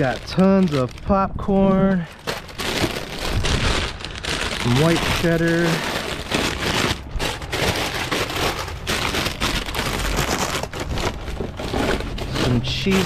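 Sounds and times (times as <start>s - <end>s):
plastic snack bags crinkling: 0.0s - 13.0s.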